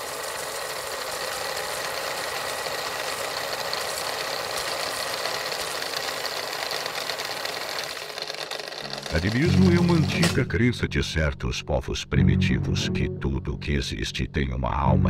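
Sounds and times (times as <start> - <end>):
fast mechanical rattle: 0.0 - 10.6.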